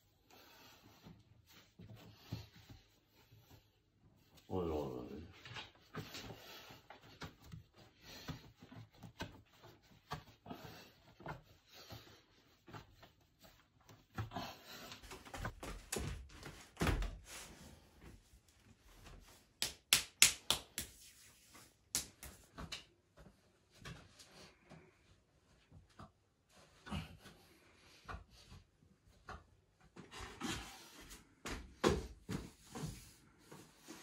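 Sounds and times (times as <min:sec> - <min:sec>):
hands kneading bread dough: 0:05.8 - 0:31.5.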